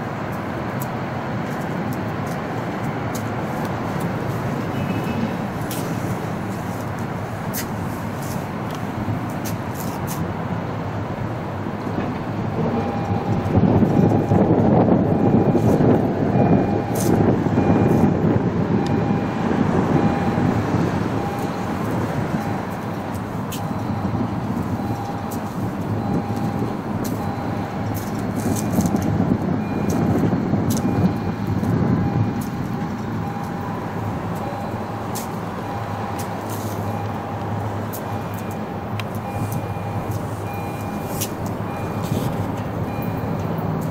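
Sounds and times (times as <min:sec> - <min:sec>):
diesel locomotive rumbling: 0:00.0 - 0:43.9.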